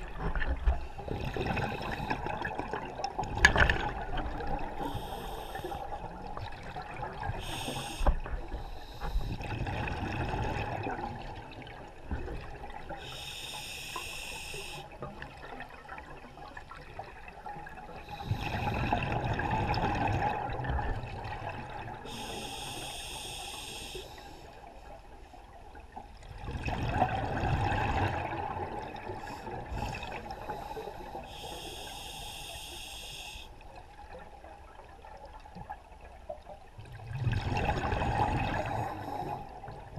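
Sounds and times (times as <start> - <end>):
exhaled bubbles rushing: 0.0 - 4.8, 9.4 - 11.8, 17.6 - 22.0, 26.4 - 30.4, 36.9 - 39.9
regulator inhale hiss: 4.8 - 6.0, 7.4 - 9.4, 13.0 - 15.0, 22.0 - 24.6, 29.2 - 33.6.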